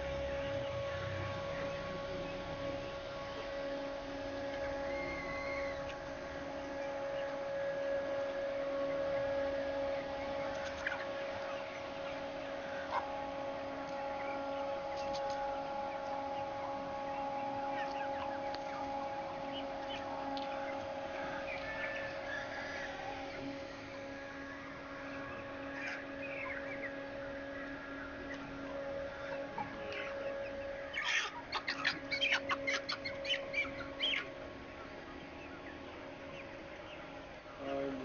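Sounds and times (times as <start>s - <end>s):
mechanical hum: 0.0s - 38.0s
chickens clucking: 10.2s - 13.2s, 17.1s - 23.4s, 25.7s - 26.9s, 27.6s - 37.1s.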